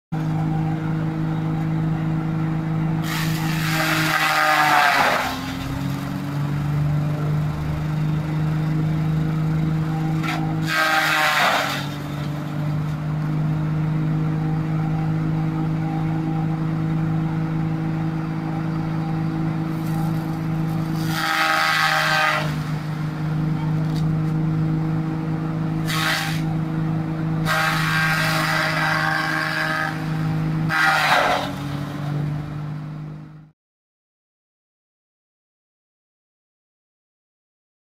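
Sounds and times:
tractor engine running: 0.1 - 33.5
rotor whine slowing: 0.2 - 30.7, 31.5 - 33.5
shredder grinding crunch: 2.9 - 14.4, 19.6 - 24.6, 25.2 - 33.1.

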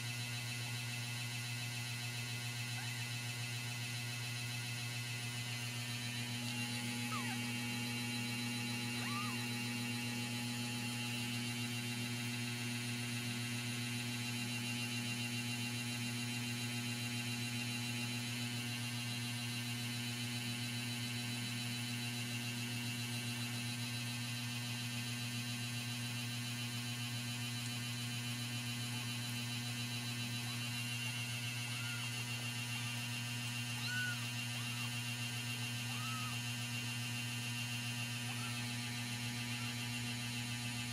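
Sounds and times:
electrical mains hum: 0.0 - 40.9
kitten mewing: 7.0 - 7.5, 9.0 - 9.6, 31.6 - 32.1, 33.7 - 35.0, 35.8 - 36.4, 38.2 - 38.7.

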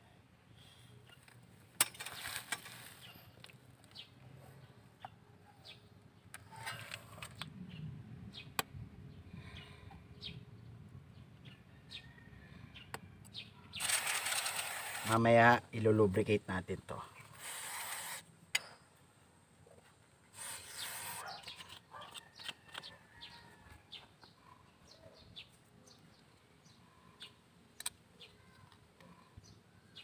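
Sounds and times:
metal parts clicking: 13.8 - 15.2
spray can hissing: 20.4 - 21.4.

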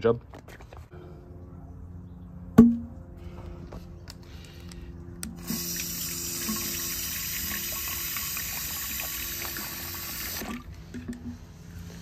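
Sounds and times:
water running into plastic bottle: 5.4 - 11.1.

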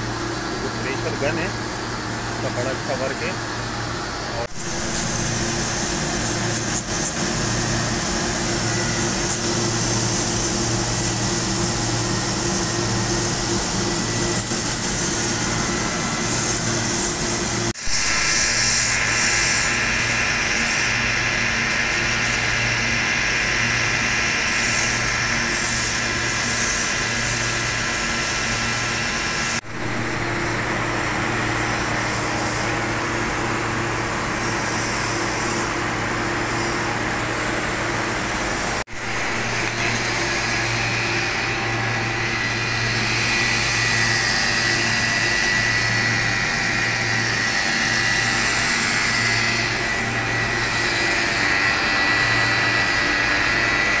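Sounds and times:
pressure washer motor humming: 0.0 - 19.3, 21.3 - 54.0
water jet hissing on metal fins: 0.0 - 20.8.

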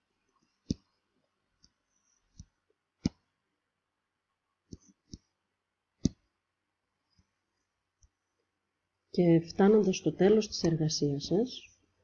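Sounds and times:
computer mouse clicks: 0.6 - 0.9, 6.0 - 6.2.

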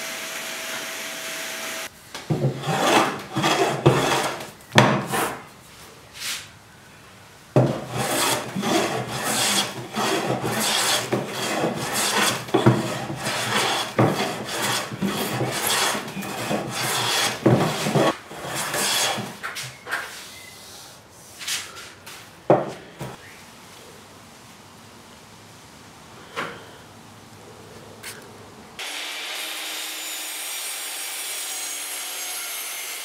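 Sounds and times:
hand tool rasping wood: 2.3 - 5.4, 7.6 - 19.4.

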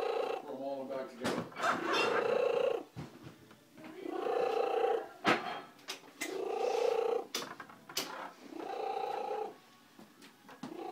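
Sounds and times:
cat purring loudly: 0.0 - 0.5, 1.7 - 2.9, 4.0 - 5.2, 6.2 - 7.4, 8.4 - 9.6, 10.7 - 10.9.

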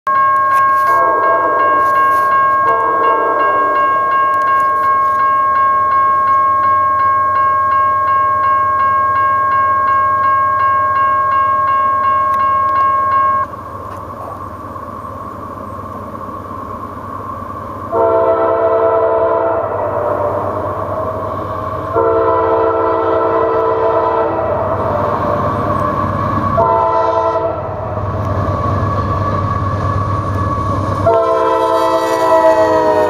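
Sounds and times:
bell-like chime dinging: 0.1 - 13.5
distant locomotive horn blast: 0.8 - 3.8, 17.9 - 20.8, 21.9 - 25.3, 26.5 - 27.8, 31.0 - 33.0.

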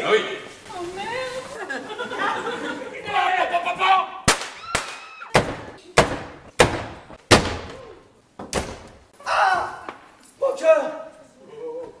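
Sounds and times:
loud sharp bangs in a hall: 4.2 - 7.8.

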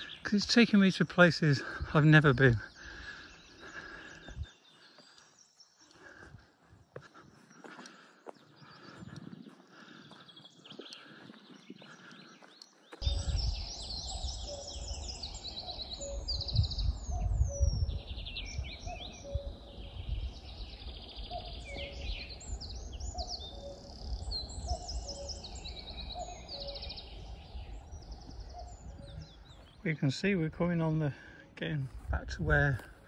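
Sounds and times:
songbirds singing: 0.0 - 33.0
footsteps on dirt path: 2.8 - 13.5, 26.2 - 29.9, 31.7 - 33.0
wind rumble on microphone: 13.0 - 29.8, 31.9 - 33.0.

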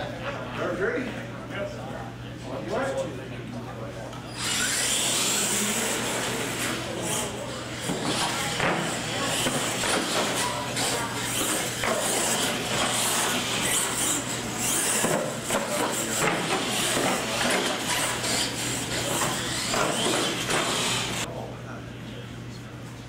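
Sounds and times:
rc trucks racing on concrete: 4.3 - 21.3.

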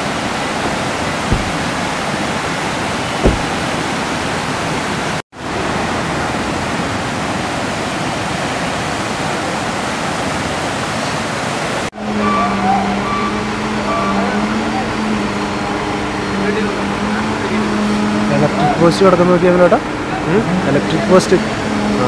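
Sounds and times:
river roaring in rapids: 0.0 - 18.8
low thump: 1.3 - 1.9, 3.2 - 3.7.

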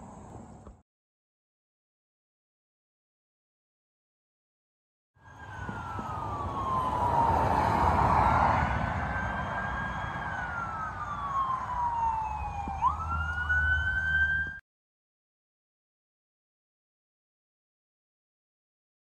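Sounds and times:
siren wailing: 5.2 - 14.6.

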